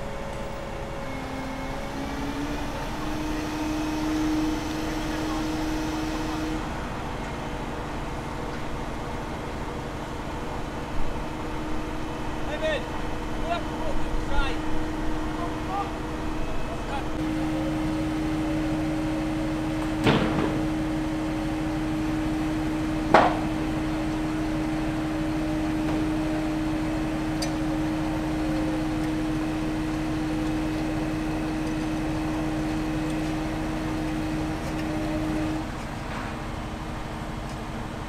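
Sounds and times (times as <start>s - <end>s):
machine humming: 0.0s - 37.4s.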